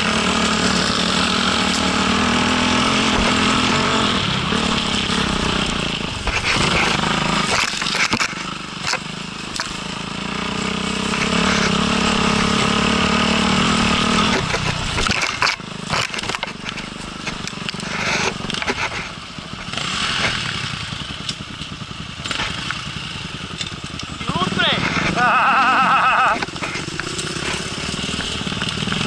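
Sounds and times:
dirt bike engine revving: 0.0s - 29.0s
knocks and clatters: 4.6s - 9.9s, 13.9s - 20.6s, 26.4s - 29.0s.

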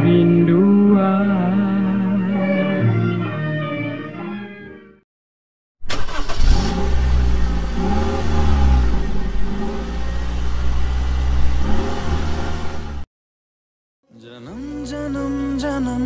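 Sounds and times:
engine revving: 5.9s - 13.1s.

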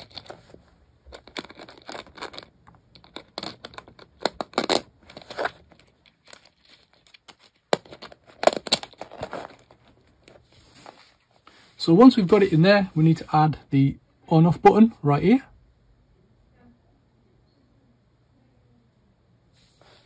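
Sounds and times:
plastic scraping and rustling: 0.0s - 12.6s.

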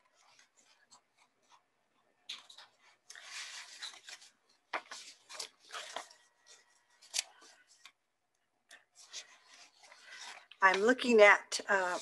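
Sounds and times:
page flips: 2.3s - 8.0s
paper pages rustling: 2.3s - 8.0s, 8.7s - 11.0s.

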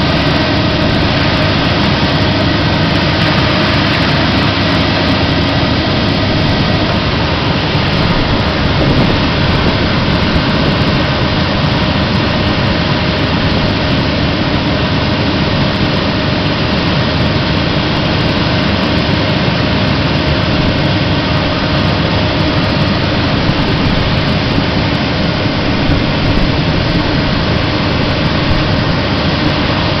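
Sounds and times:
industrial vacuum sucking grit: 0.0s - 18.7s.

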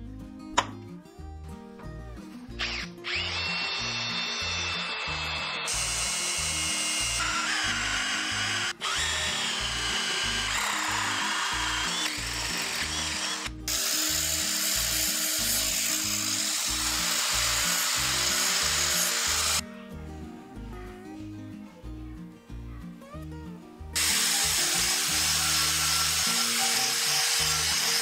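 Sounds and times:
drill whining through steel: 2.6s - 19.6s, 24.0s - 28.0s
grinder grinding: 2.6s - 19.6s, 24.0s - 28.0s.

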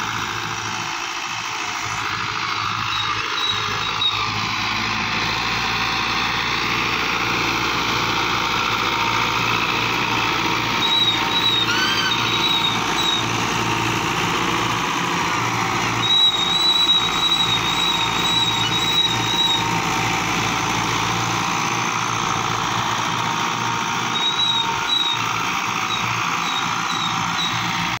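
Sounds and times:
tractor diesel engine running: 0.0s - 28.0s
thin high whistle: 10.8s - 13.2s.

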